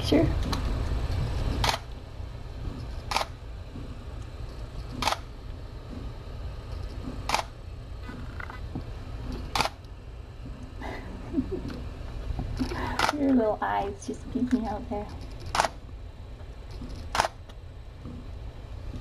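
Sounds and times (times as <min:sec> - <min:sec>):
low steady hum: 0:00.0 - 0:19.0
camera shutter clicking: 0:03.1 - 0:03.3, 0:05.0 - 0:05.2, 0:07.3 - 0:07.5, 0:09.5 - 0:09.8, 0:17.1 - 0:17.4.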